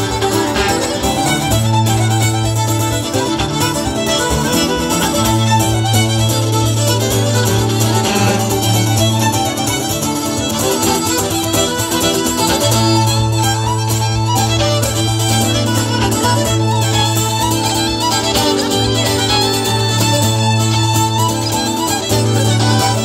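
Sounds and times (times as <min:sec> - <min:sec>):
fiddle accordion and guitar tune: 0:00.0 - 0:23.0.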